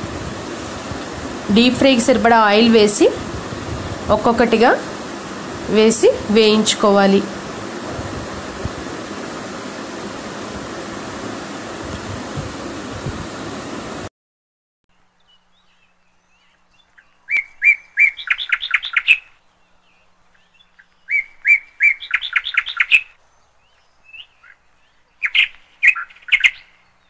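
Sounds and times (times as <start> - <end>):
bird chirping: 15.0 - 27.0.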